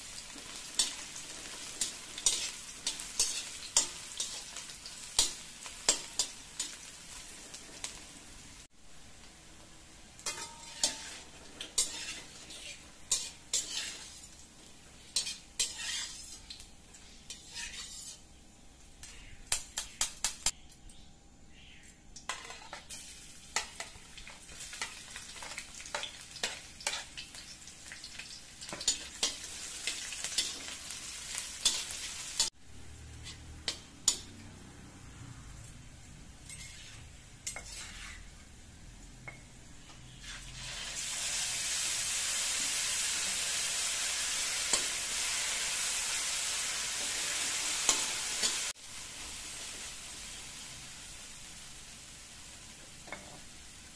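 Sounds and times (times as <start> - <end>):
food sizzling in hot oil: 0.0 - 20.6, 22.2 - 53.9
metal spatula scraping pan: 1.8 - 4.4, 10.2 - 14.4, 15.2 - 16.5, 17.2 - 18.2, 36.4 - 38.5.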